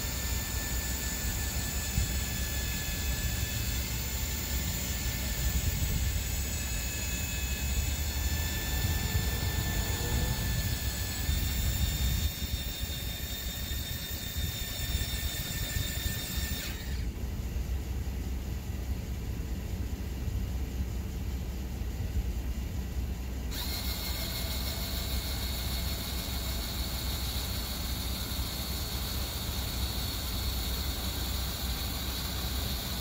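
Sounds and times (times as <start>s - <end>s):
electric awning motor whining: 0.0s - 17.3s, 23.4s - 33.0s
low rumble: 8.4s - 12.2s.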